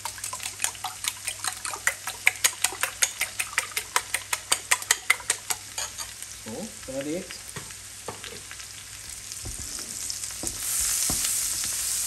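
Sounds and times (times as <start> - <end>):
fork beating eggs in a bowl: 0.0 - 6.1
onions sizzling in butter: 2.2 - 12.0.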